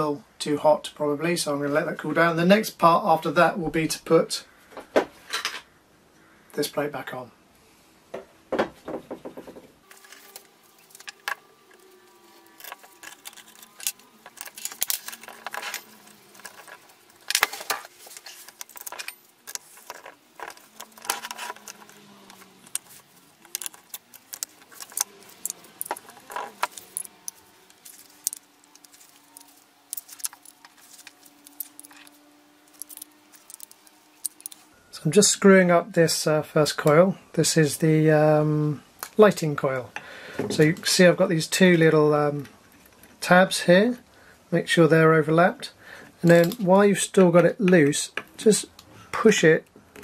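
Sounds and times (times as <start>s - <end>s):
small metal parts clinking: 9.9s - 34.7s.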